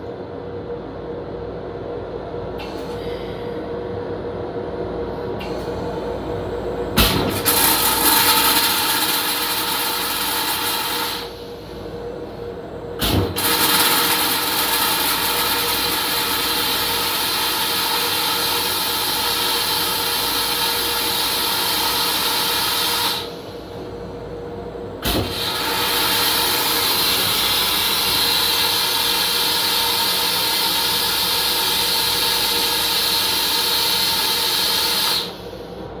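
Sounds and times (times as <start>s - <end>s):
toilet flush motor and water: 6.9s - 12.1s, 12.9s - 23.9s, 25.0s - 36.0s.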